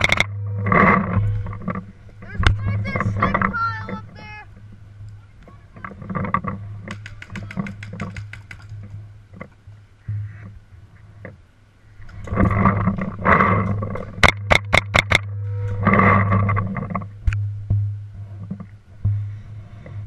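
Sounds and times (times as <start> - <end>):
paintball marker shots: 6.9 - 8.7.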